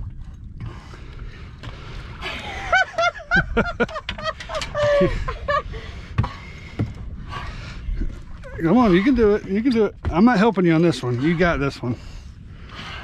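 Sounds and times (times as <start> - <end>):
steady low rumble: 0.0 - 13.0
person laughing and squealing: 2.4 - 5.6.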